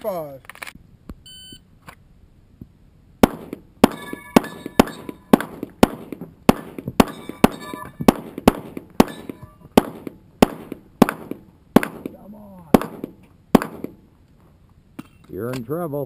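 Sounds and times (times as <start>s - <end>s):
handgun shots: 3.2s - 12.2s, 12.8s - 14.0s
steel plate clanging: 3.8s - 5.5s, 7.0s - 8.2s, 9.0s - 9.7s.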